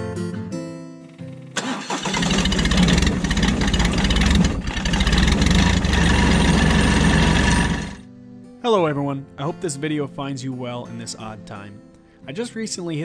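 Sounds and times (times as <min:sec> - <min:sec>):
tractor diesel engine under load: 0:01.6 - 0:08.0.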